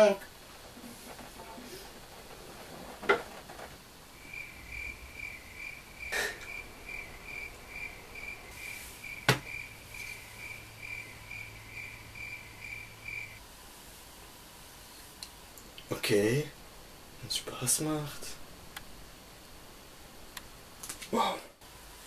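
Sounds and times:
insect chirping: 0:04.0 - 0:13.4.

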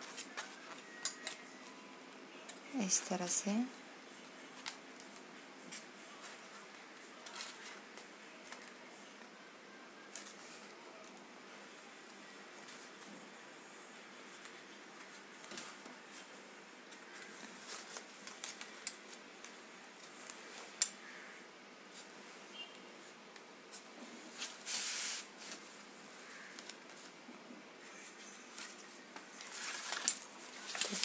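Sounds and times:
paper rustling: 0:27.9 - 0:31.0.

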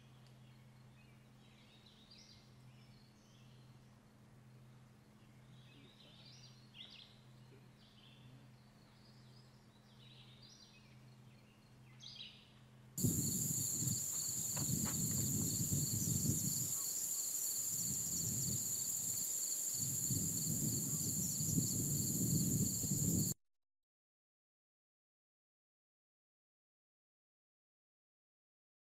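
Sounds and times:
faint bird song: 0:00.0 - 0:23.3
high-pitched insect drone: 0:13.0 - 0:23.4
low hum: 0:13.0 - 0:23.4
wind rumble on microphone: 0:13.0 - 0:23.4.

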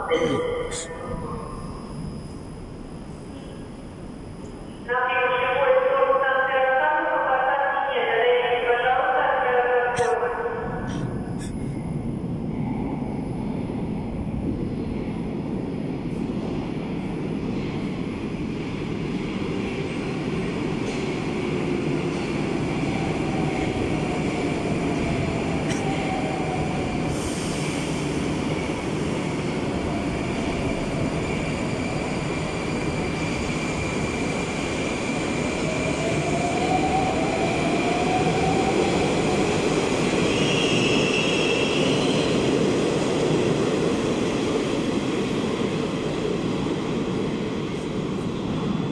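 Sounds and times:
train wheels rumbling on rail: 0:13.4 - 0:48.9.

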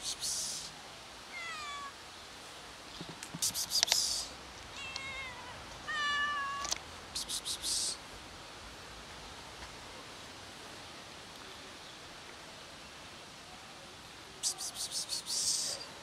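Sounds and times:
person calling psst: 0:00.0 - 0:00.8, 0:03.0 - 0:04.4, 0:07.2 - 0:08.0, 0:14.4 - 0:15.9
cats meowing: 0:01.3 - 0:02.0, 0:04.7 - 0:06.8.

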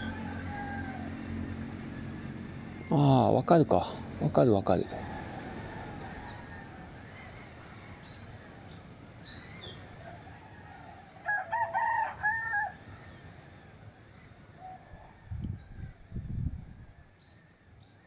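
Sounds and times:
rooster crowing: 0:00.0 - 0:02.8, 0:04.8 - 0:07.4, 0:10.0 - 0:13.2, 0:14.6 - 0:16.1
faint outdoor hiss: 0:00.0 - 0:18.0
small birds chirping: 0:05.5 - 0:11.2.

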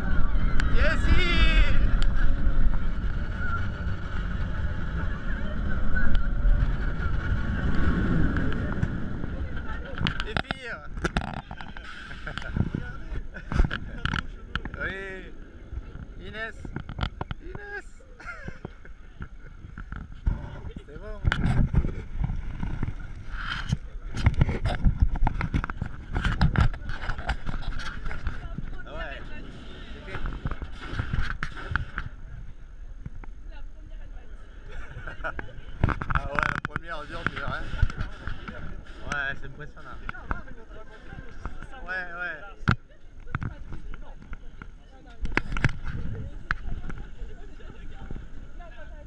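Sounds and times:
roller coaster train rumbling on track: 0:00.0 - 0:17.0
wind buffeting microphone: 0:00.0 - 0:17.8, 0:18.4 - 0:33.9, 0:34.6 - 0:49.0
roller coaster rumbling on track: 0:00.0 - 0:49.0.

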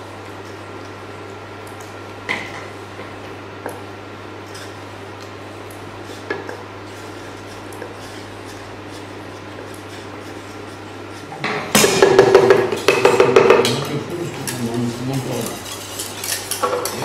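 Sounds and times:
steady low hum: 0:00.0 - 0:17.0
spatula stirring in saucepan: 0:05.9 - 0:11.4, 0:14.3 - 0:17.0
spatula knocking against pan: 0:11.4 - 0:13.8.

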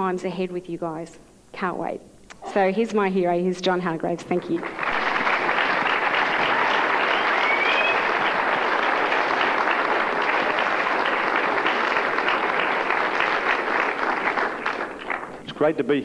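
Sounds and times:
audience applauding: 0:04.4 - 0:15.8
rising whistle from crowd: 0:06.4 - 0:08.6.

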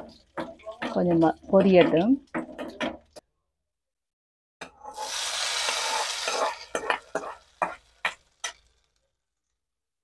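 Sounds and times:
hot oil sizzling: 0:04.6 - 0:09.6.

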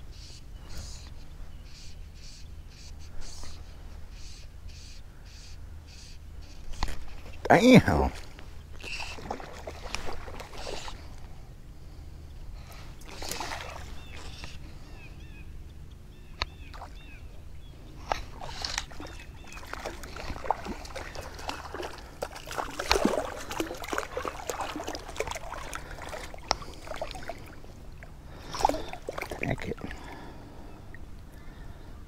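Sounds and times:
water sloshing: 0:08.1 - 0:11.4, 0:12.6 - 0:14.8, 0:16.4 - 0:31.6
fish thrashing and splashing: 0:08.8 - 0:11.1, 0:13.0 - 0:14.4, 0:18.1 - 0:30.3.

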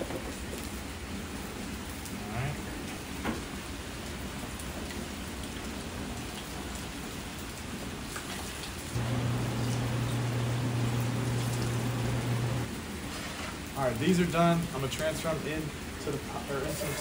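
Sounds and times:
steady rain: 0:00.0 - 0:17.0
water stream into plastic container: 0:09.0 - 0:12.7
low electric hum: 0:09.0 - 0:12.8.

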